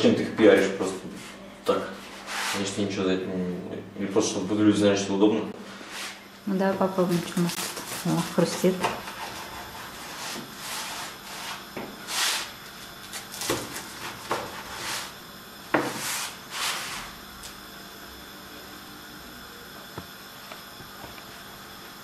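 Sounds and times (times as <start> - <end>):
knife sawing through crust: 7.6 - 12.5, 13.1 - 15.2, 15.8 - 17.1.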